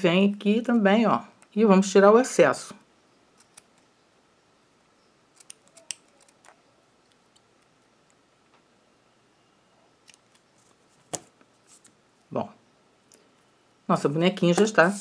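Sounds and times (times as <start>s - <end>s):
scissors snipping: 5.3s - 6.6s.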